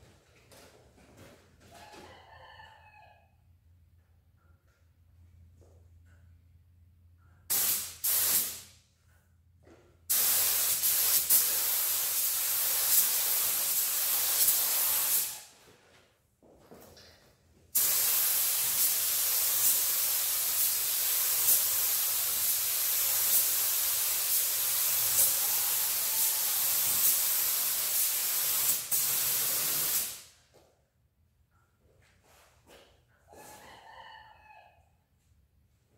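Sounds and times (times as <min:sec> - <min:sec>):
paint spray gun hissing: 0:07.5 - 0:08.6, 0:10.1 - 0:15.4, 0:17.8 - 0:30.3.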